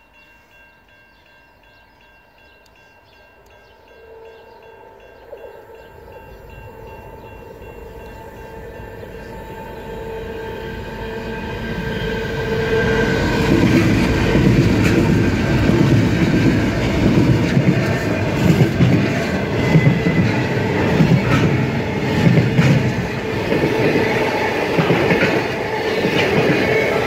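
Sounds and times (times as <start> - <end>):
diesel locomotives passing: 0.5 - 27.0
train wheels rumbling and clicking: 10.7 - 27.0.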